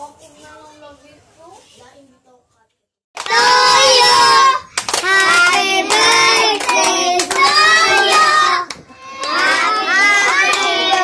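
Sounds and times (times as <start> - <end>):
hands clapping: 3.2 - 3.5, 4.7 - 11.0
children singing: 3.3 - 11.0.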